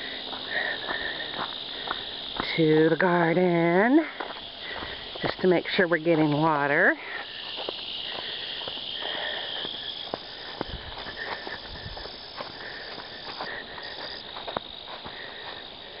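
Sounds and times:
insects trilling: 0.0s - 16.0s
soft footsteps and scuffs: 4.0s - 16.0s.

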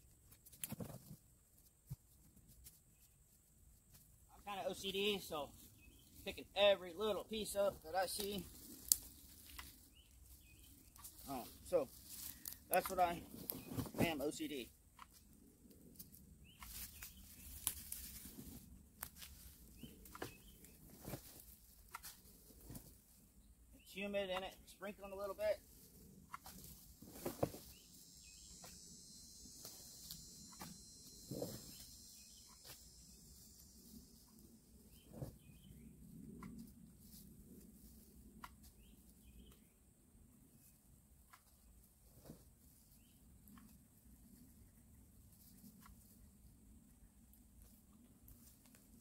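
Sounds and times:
bird chirps: 27.6s - 34.1s.

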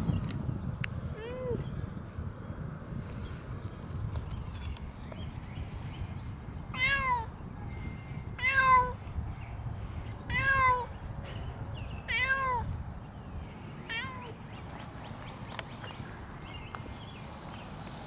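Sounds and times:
cat meowing: 6.8s - 7.3s, 8.4s - 9.0s, 10.3s - 10.9s, 12.1s - 12.7s, 13.9s - 14.4s.

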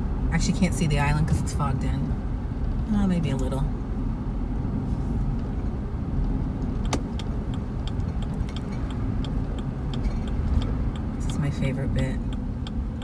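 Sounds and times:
engine and tyres rumbling: 0.0s - 13.0s
light ticking: 6.7s - 13.0s
sharp click: 6.8s - 7.3s.

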